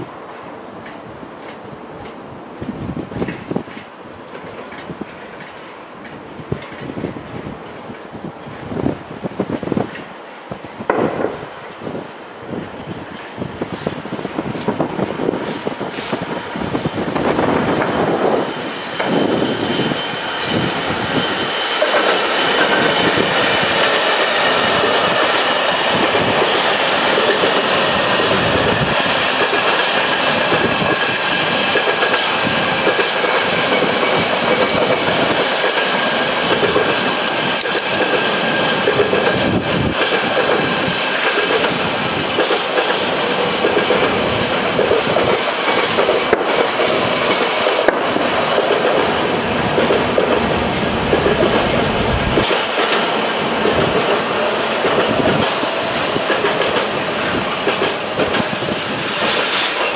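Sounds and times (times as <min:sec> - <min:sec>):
train wheels rumbling on rails: 0:00.0 - 0:59.9
high-pitched whine: 0:40.6 - 0:42.3.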